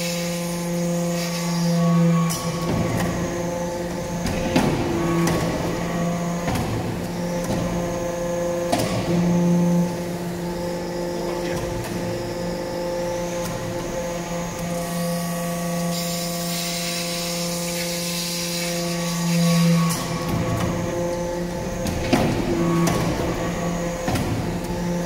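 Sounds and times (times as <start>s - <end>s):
hiss: 0.0s - 1.8s, 15.8s - 20.0s
hydraulic press humming: 0.0s - 25.0s.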